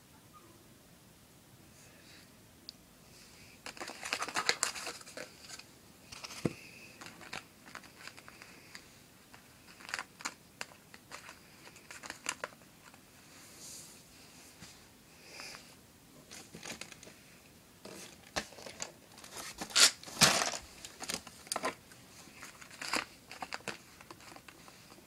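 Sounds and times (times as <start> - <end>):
paper rustling: 3.6 - 13.0, 17.9 - 25.0.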